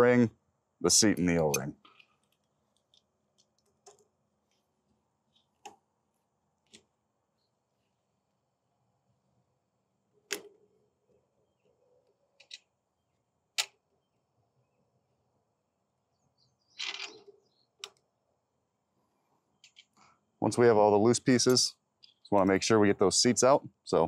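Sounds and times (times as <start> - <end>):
small metal parts clicking: 16.8 - 17.2.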